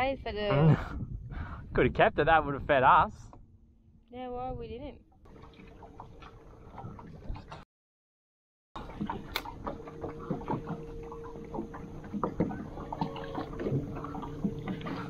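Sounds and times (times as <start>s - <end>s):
boat motor humming: 3.3s - 7.6s, 8.8s - 15.0s
water lapping against hull: 4.4s - 7.6s, 8.8s - 15.0s.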